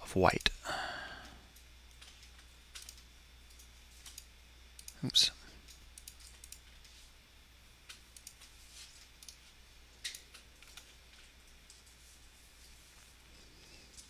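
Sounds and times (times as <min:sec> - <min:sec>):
computer mouse clicks: 0:01.5 - 0:05.0, 0:05.6 - 0:06.9, 0:07.8 - 0:08.5, 0:09.1 - 0:09.4, 0:10.0 - 0:10.9.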